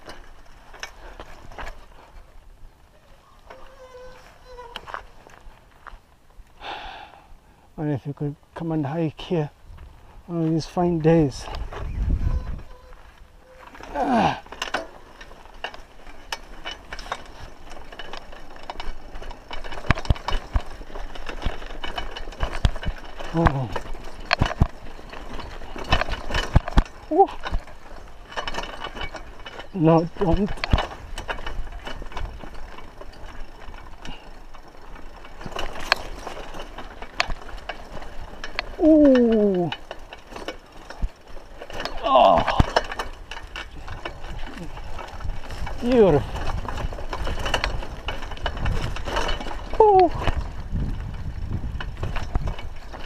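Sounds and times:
mountain bike rattling on stony trail: 0.0s - 53.0s.

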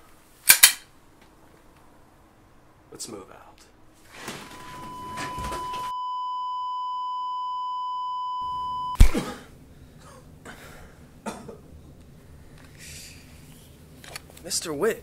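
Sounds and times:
high electronic beep tone: 4.5s - 9.0s.

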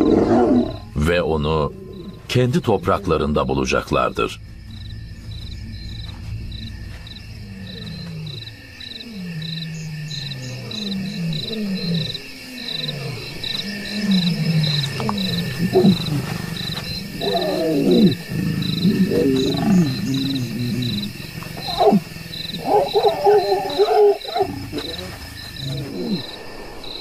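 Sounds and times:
lions growling: 0.0s - 26.8s
crickets chirping: 0.0s - 27.0s
lion snarl: 7.4s - 26.8s.

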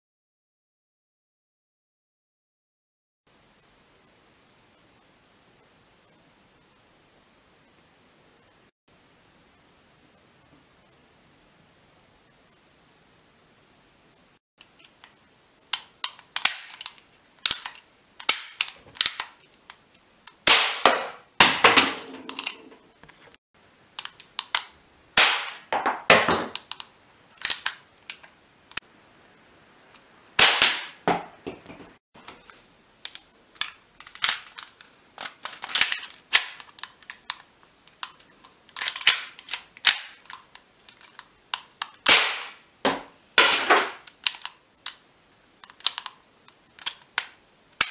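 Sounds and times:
cap gun shots: 20.5s - 22.1s, 25.2s - 26.6s, 30.4s - 31.1s, 42.0s - 44.0s.

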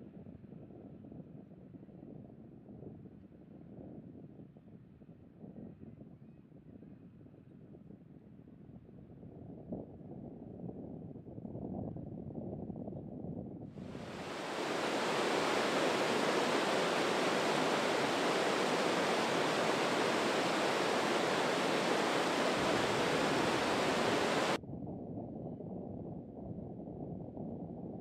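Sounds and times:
water rushing over boulders: 14.0s - 24.6s.

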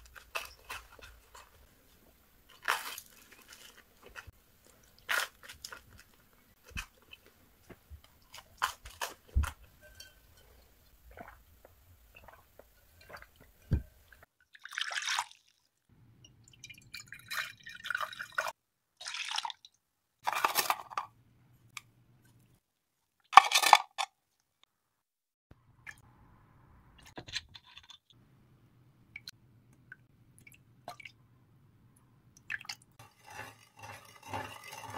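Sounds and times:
metal spoon stirring: 0.0s - 1.7s, 9.0s - 11.4s, 33.0s - 34.9s.

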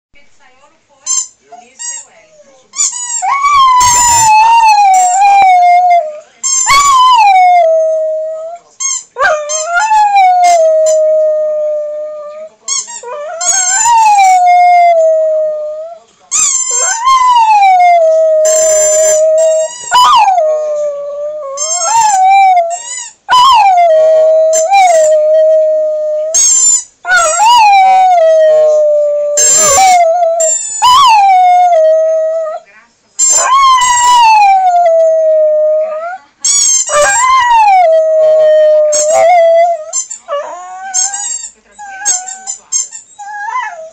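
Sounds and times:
dog howling: 9.2s - 16.0s, 16.8s - 26.5s, 27.1s - 32.6s, 33.4s - 36.2s, 36.9s - 42.6s, 43.2s - 43.9s.

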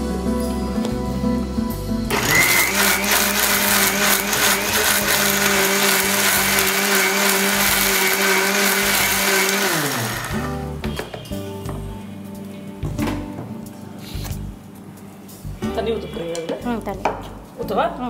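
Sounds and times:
mixer grinder motor running: 2.1s - 10.6s.

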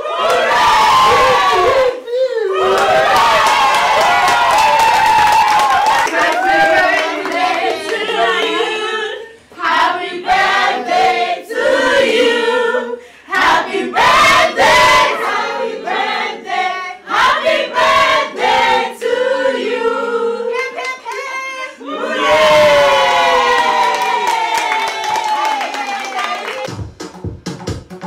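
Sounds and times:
group of people singing: 6.1s - 20.7s
hand claps: 23.9s - 26.8s.

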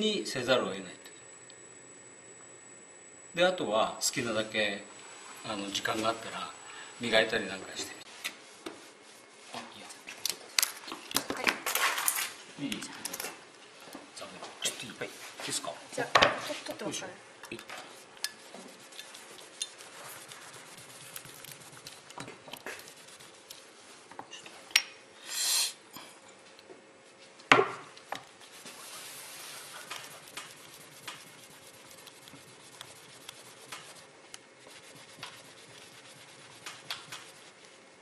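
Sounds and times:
cloth rubbing on metal: 17.8s - 22.1s, 22.7s - 24.0s, 28.3s - 38.0s
short hiss: 25.2s - 25.8s.

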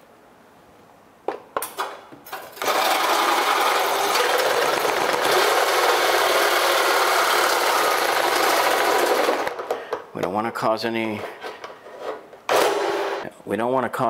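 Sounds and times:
reciprocating saw cutting: 2.6s - 9.6s.

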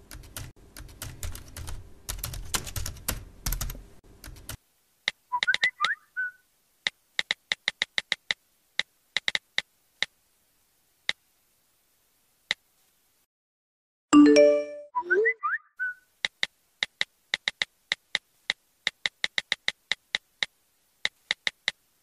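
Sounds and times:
notification chime: 14.2s - 14.9s
touch keyboard tap clicks: 16.2s - 21.8s.

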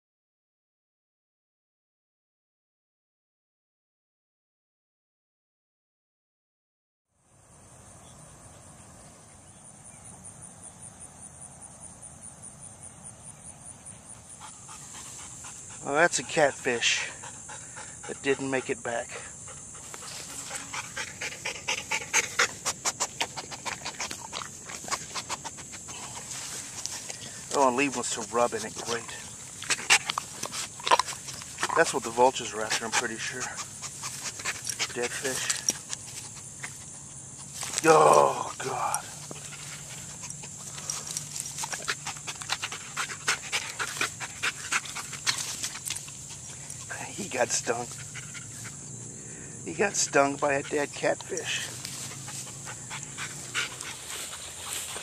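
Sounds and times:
high hum of insects: 7.1s - 55.0s
dog breathing hard: 13.9s - 37.7s, 38.6s - 55.0s
scuffling in grass: 19.8s - 48.8s, 51.4s - 55.0s.

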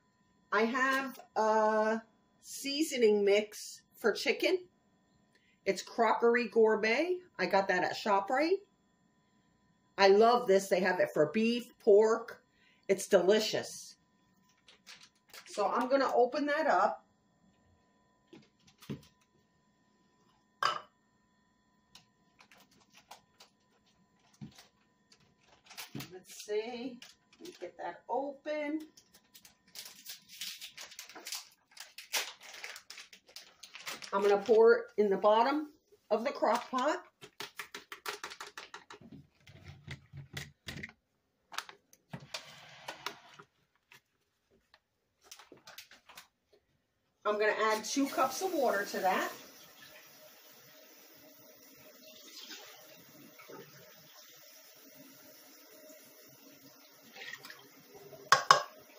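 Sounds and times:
packet rustle: 14.5s - 15.8s, 22.4s - 27.7s, 28.9s - 34.8s, 43.1s - 46.4s
packet crinkling and clicking: 14.5s - 15.9s, 22.0s - 26.2s, 26.9s - 27.6s, 28.8s - 34.6s, 40.3s - 42.1s, 43.6s - 46.4s
powder pouring hiss: 48.1s - 58.3s.

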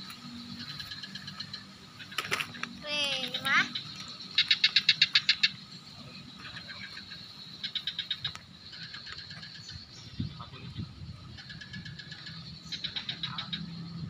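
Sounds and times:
fast animal chirps: 6.4s - 13.9s.

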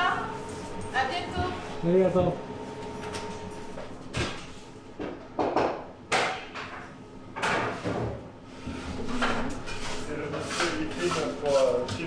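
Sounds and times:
objects scraping and knocking: 7.4s - 12.0s.

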